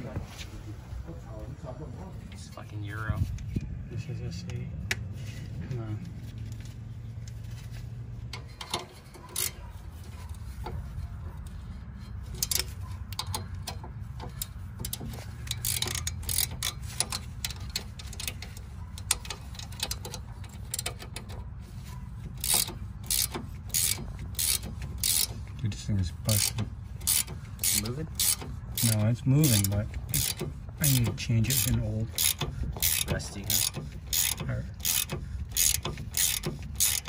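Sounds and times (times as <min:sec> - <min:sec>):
ratchet wrench clicks and knocks: 0:08.3 - 0:09.6, 0:11.4 - 0:21.6, 0:22.2 - 0:25.6, 0:26.3 - 0:37.0.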